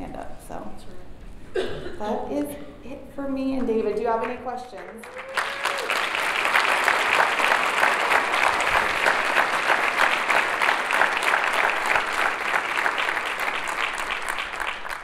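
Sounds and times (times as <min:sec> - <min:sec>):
audience applauding: 0:04.8 - 0:15.0.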